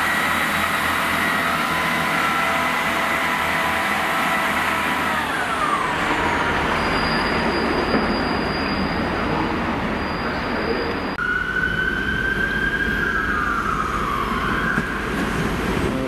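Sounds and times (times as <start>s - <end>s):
train engine whine and rumble: 0.0s - 16.0s
high wheel squeal: 0.5s - 11.1s.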